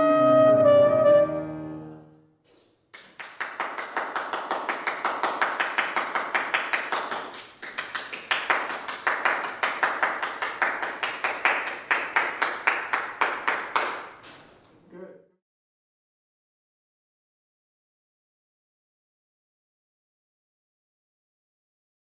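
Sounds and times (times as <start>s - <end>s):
audience applauding: 3.0s - 14.2s.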